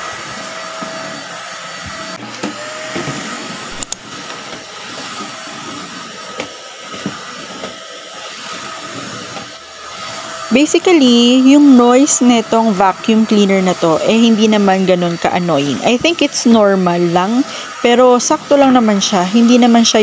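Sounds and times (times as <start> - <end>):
stick vacuum running: 0.0 - 20.0.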